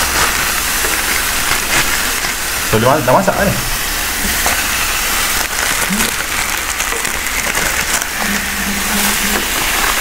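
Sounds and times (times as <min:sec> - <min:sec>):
fat popping and crackling: 0:00.0 - 0:02.6, 0:04.2 - 0:10.0
meat sizzling on a grill: 0:00.0 - 0:10.0.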